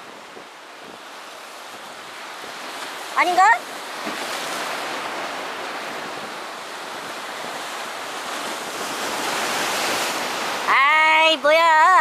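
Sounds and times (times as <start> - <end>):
wind buffeting microphone: 0.0 - 11.2.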